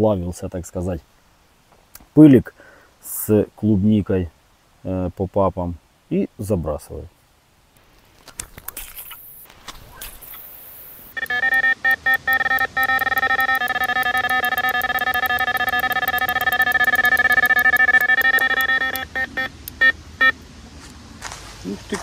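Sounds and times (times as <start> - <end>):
electronic bite alarm beeping: 11.0 - 20.4.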